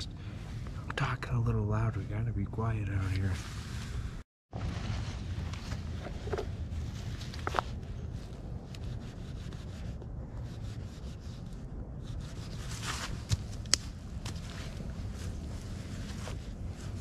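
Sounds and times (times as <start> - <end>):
low wind rumble: 0.0 - 17.0
sticks rustling and scraping: 12.1 - 17.0
sticks cracking: 13.2 - 14.4.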